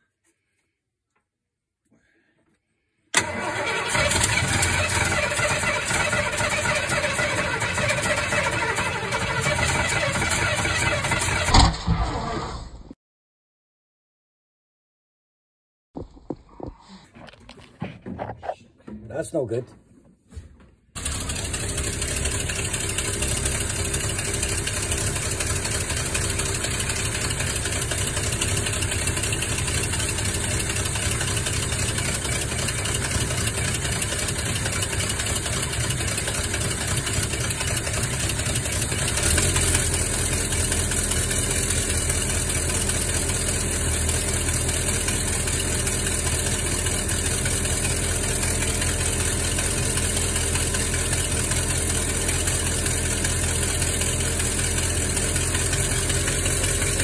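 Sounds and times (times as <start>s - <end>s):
van engine idling: 3.2s - 11.5s, 21.0s - 57.0s.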